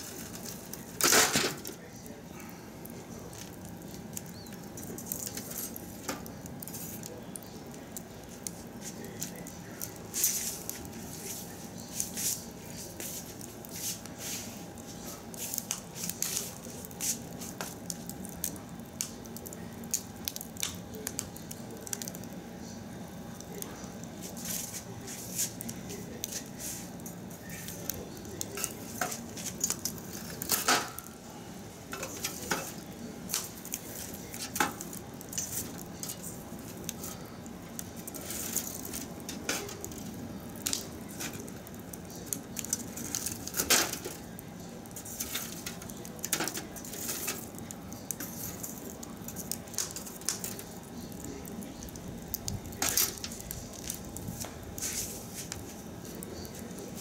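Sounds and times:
metal poker knocking burning wood: 0:00.0 - 0:01.8, 0:03.3 - 0:10.9, 0:26.2 - 0:31.2, 0:31.9 - 0:51.2
wood fire crackling and popping: 0:00.0 - 0:57.0.

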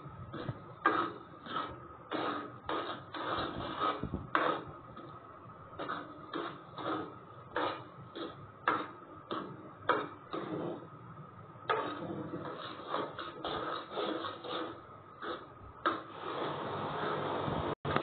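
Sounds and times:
spoon scraping a metal pan: 0:00.3 - 0:05.1, 0:05.8 - 0:10.9, 0:11.7 - 0:16.5.

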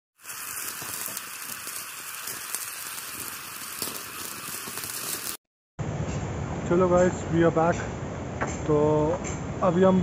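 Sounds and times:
old film crackle: 0:00.2 - 0:05.4.

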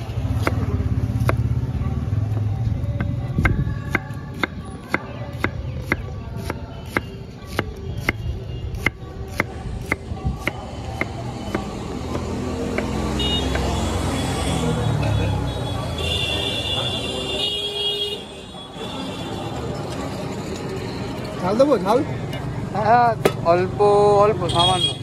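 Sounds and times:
traffic noise: 0:00.0 - 0:25.0
car horn: 0:13.1 - 0:19.4, 0:24.4 - 0:25.0.

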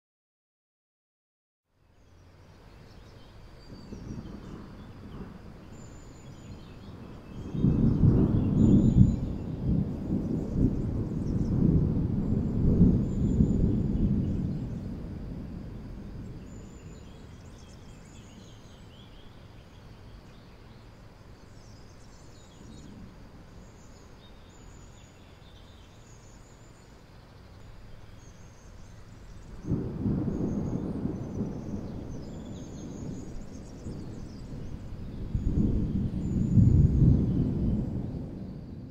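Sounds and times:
faint bird chirps: 0:01.8 - 0:15.0, 0:15.9 - 0:38.9
thunder rumbling: 0:03.6 - 0:26.9, 0:27.7 - 0:38.9
loud thunder peal: 0:03.7 - 0:17.8, 0:29.2 - 0:38.9.

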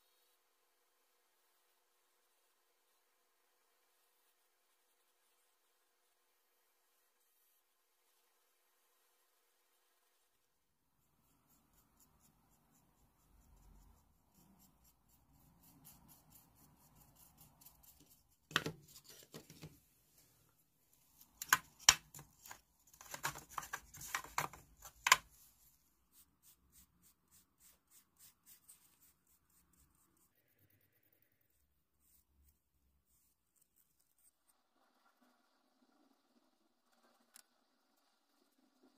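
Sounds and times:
paintbrush scratchy strokes: 0:03.6 - 0:21.2, 0:25.3 - 0:38.9.

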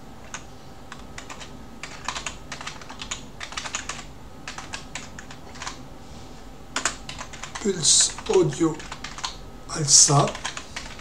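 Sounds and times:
keyboard typing: 0:00.2 - 0:05.8, 0:06.8 - 0:09.4, 0:10.2 - 0:11.0.

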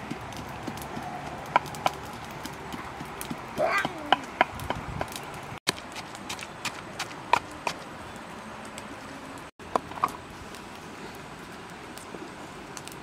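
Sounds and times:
pestle pounding in mortar: 0:00.0 - 0:07.8
outdoor background hiss: 0:00.0 - 0:13.0.

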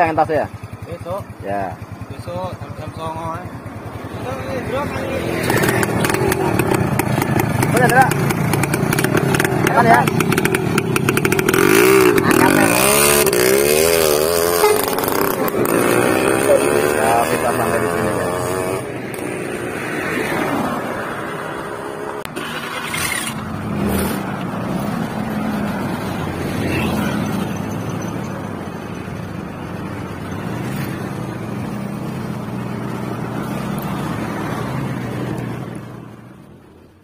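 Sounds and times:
motorcycle engine running: 0:00.0 - 0:18.8
wind and road noise: 0:01.8 - 0:37.0.

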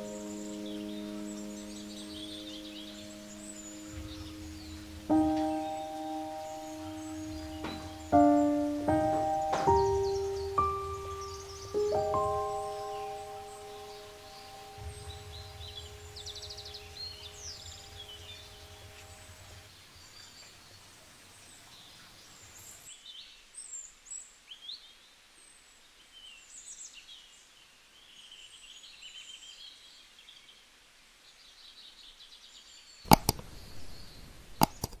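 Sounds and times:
held musical chord: 0:00.0 - 0:19.7
birds chirping: 0:00.0 - 0:23.8
sharp clicks: 0:33.1 - 0:33.5, 0:34.6 - 0:35.0.

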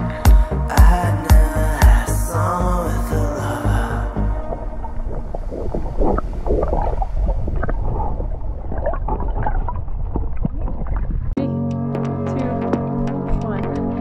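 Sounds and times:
music: 0:00.0 - 0:05.3, 0:11.4 - 0:14.0
muffled underwater sloshing: 0:04.3 - 0:11.4.

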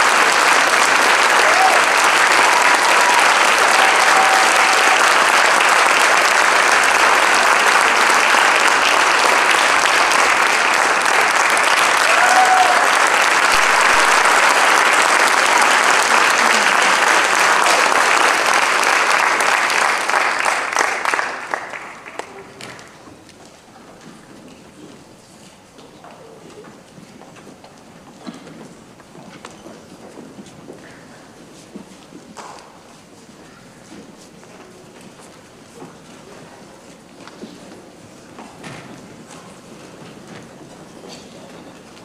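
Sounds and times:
audience applauding: 0:00.0 - 0:23.0.

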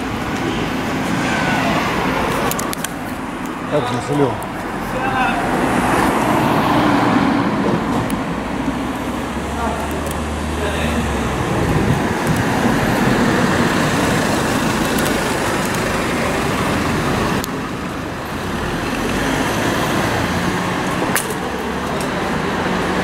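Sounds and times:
passing cars: 0:00.0 - 0:23.0.

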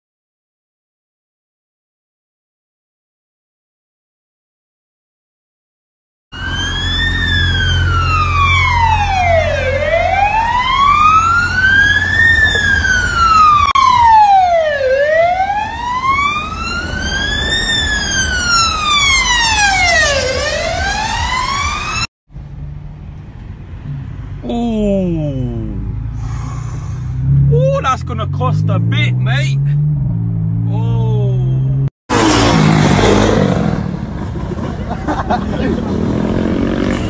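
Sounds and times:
police siren wailing: 0:06.4 - 0:22.1.

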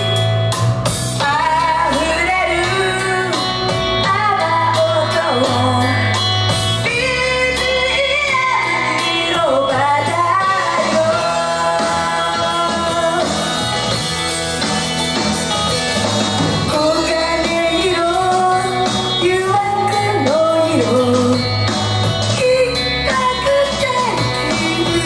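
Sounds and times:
loud rock band music: 0:00.0 - 0:25.0
woman singing into a microphone: 0:01.1 - 0:14.0, 0:16.6 - 0:25.0.

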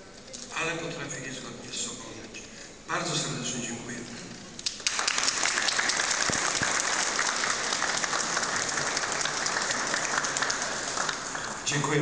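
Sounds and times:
audience applauding: 0:04.6 - 0:12.0.

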